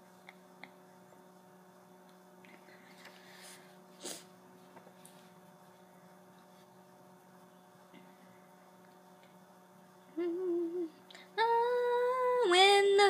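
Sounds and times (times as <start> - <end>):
low electrical hum: 0.0 - 13.0
woman humming a note: 10.2 - 12.4.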